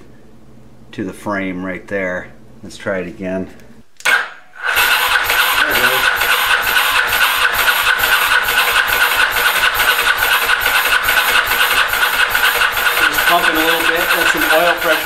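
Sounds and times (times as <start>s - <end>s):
motorcycle starter cranking engine: 4.0s - 15.0s.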